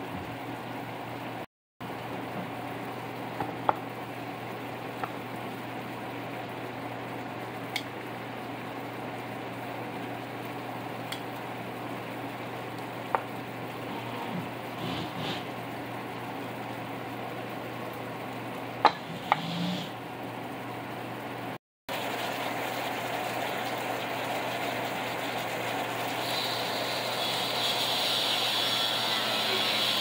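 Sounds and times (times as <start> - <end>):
sauce bubbling and sizzling in pan: 21.9 - 27.0.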